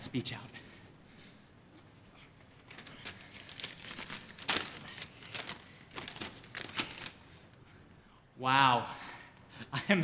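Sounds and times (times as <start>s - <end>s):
irregular crackles: 2.4s - 7.6s
paper rustling and crinkling: 2.6s - 7.2s.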